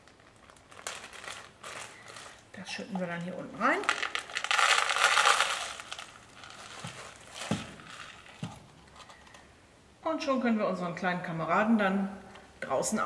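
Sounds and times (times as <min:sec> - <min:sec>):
plastic bag crinkling: 0:00.0 - 0:09.4
seeds pouring rattle: 0:03.8 - 0:08.5.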